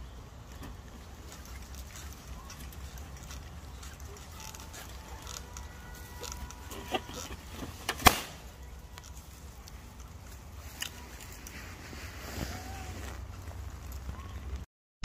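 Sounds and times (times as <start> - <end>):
low outdoor rumble: 0.0 - 14.6.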